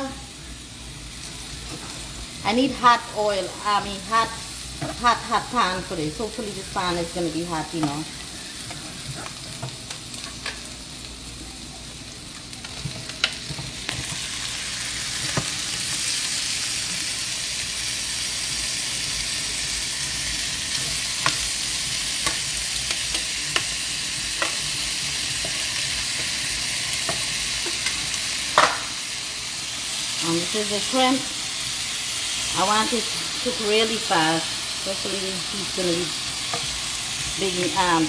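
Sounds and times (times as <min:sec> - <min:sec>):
shrimp sizzling in a frying pan: 0:00.0 - 0:38.0.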